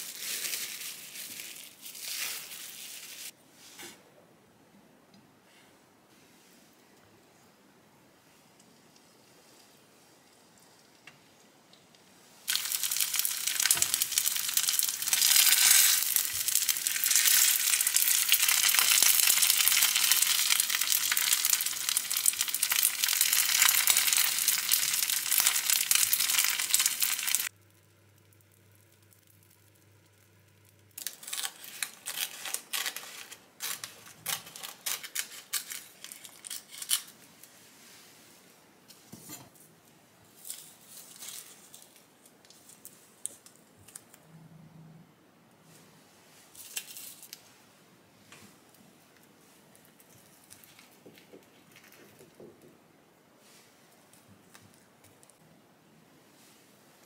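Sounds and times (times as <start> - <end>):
crackling of seaweed sheets: 0.0 - 3.4, 12.5 - 38.0, 40.4 - 44.2, 46.5 - 47.5, 48.7 - 52.4
rice balls sizzling in a pan: 12.5 - 33.2.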